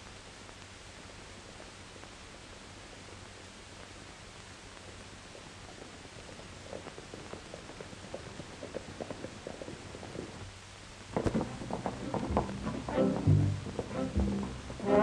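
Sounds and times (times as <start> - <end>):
old film soundtrack hiss: 0.0 - 15.0
horse hooves clopping on dirt: 5.4 - 10.5, 11.1 - 15.0
orchestral music with brass: 12.9 - 15.0.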